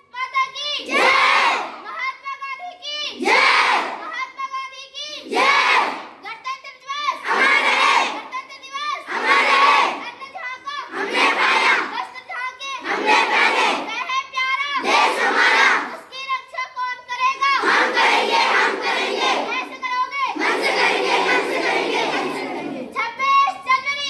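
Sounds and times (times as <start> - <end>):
children shouting in unison: 0.7 - 2.0, 3.1 - 4.1, 5.2 - 6.1, 7.2 - 12.1, 12.8 - 14.0, 14.7 - 16.0, 17.4 - 24.0.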